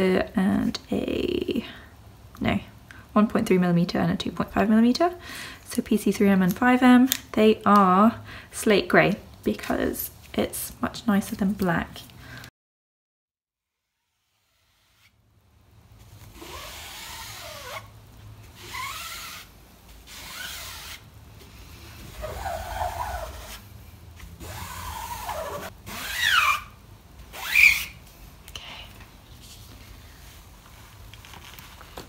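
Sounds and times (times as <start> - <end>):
squeegee scraping screen mesh: 16.1 - 21.1, 21.9 - 28.0
squeegee squeals: 27.4 - 27.9.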